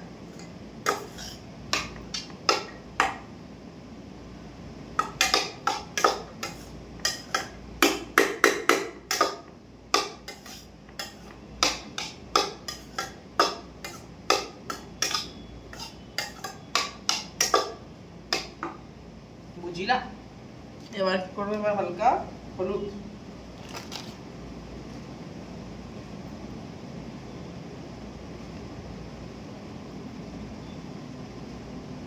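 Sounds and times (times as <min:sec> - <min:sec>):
metal spoon scraping steel pan: 0:00.4 - 0:01.4, 0:10.2 - 0:11.4, 0:12.4 - 0:14.1, 0:14.7 - 0:16.6.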